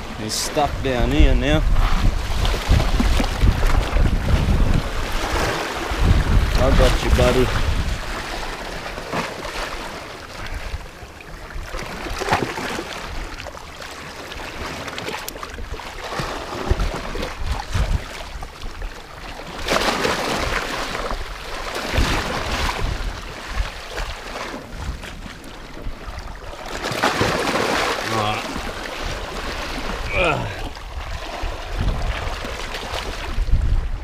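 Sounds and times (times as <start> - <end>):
wind buffeting microphone: 0.0 - 8.8, 15.5 - 18.9, 20.2 - 26.4, 28.5 - 34.0
sea waves washing against rocks: 0.0 - 34.0.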